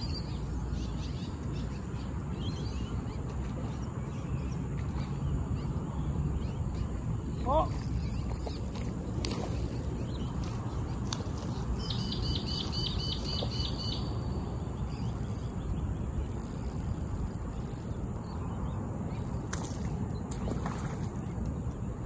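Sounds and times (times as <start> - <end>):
steady low rumble: 0.0 - 22.0
bird calling high notes: 11.8 - 15.2.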